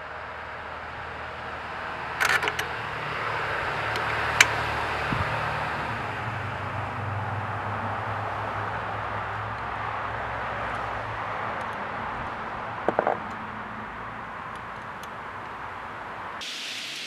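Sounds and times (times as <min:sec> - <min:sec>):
sharp metal clicks: 0:02.2 - 0:02.8.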